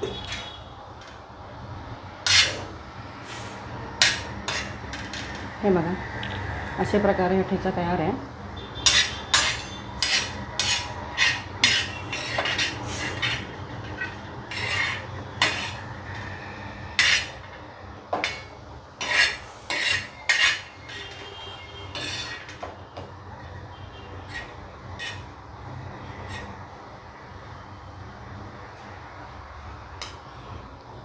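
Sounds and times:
metal spoon scraping iron pan: 0.0 - 0.6, 2.2 - 5.5, 8.8 - 22.8, 24.2 - 26.6.

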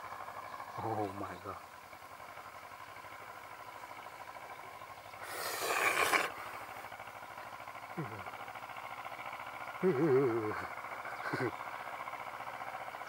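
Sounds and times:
rustling scrape: 5.3 - 6.4.

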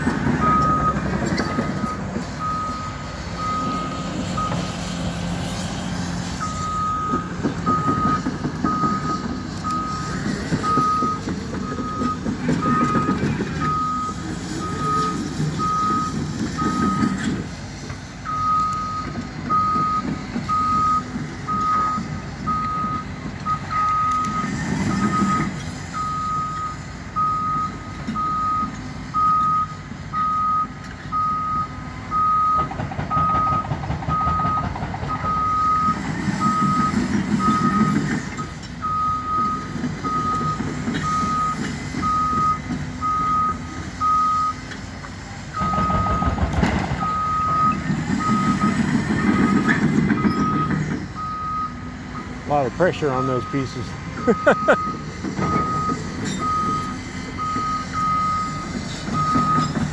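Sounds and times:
excavator engines rumbling: 0.0 - 59.9
backup alarm beeping: 6.4 - 17.2, 25.0 - 38.0, 47.0 - 52.4, 53.2 - 59.8.

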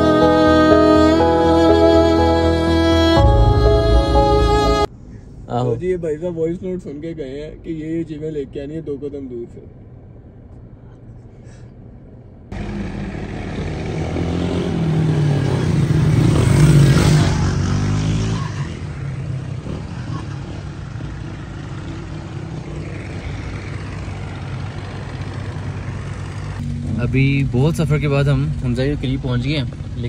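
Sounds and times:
hum of slow traffic: 0.0 - 30.0
vehicle passing close: 12.5 - 27.1.

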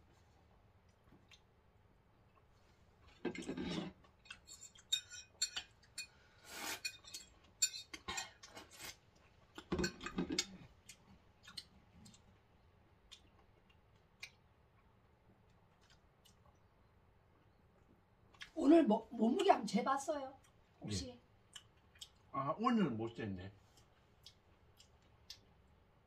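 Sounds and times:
eating noises: 20.4 - 22.3.

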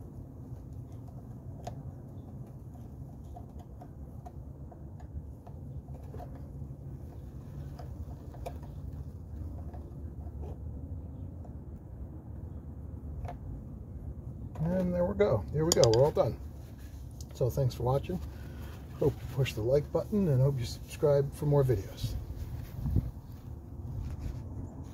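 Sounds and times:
camera handling rumble: 22.1 - 24.9.

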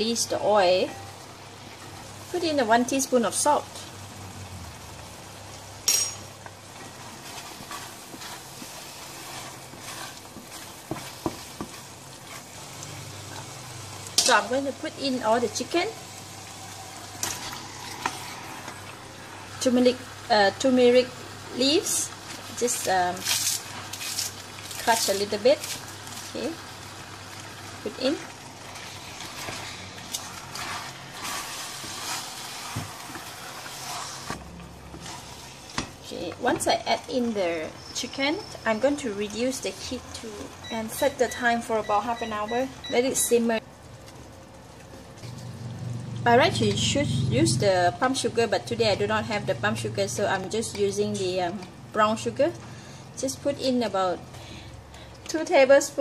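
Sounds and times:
paste sizzling in oil: 6.6 - 41.2
spatula scraping paste in a wok: 7.0 - 12.5, 29.4 - 35.8.

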